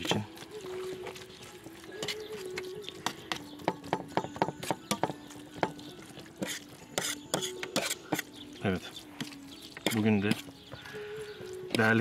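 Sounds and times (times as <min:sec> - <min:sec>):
fork scraping metal tray: 0:06.3 - 0:08.4.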